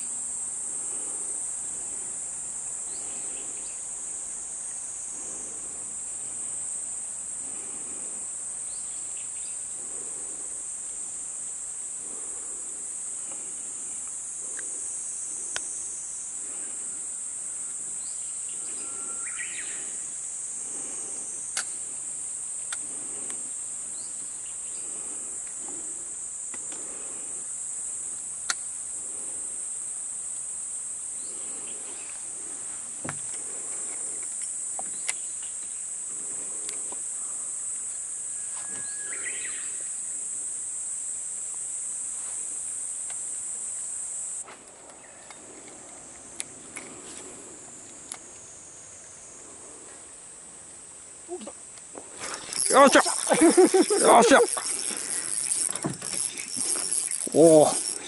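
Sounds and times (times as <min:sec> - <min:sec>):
insects chorus: 0:00.0 - 0:58.0.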